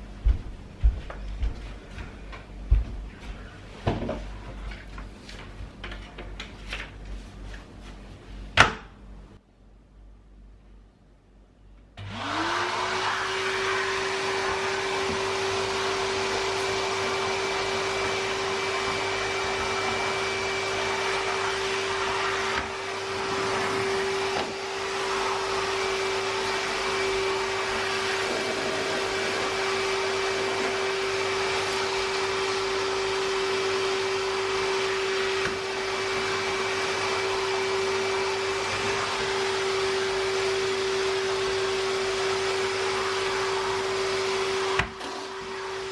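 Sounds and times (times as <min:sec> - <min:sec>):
shop vacuum motor running: 0:12.0 - 0:45.9.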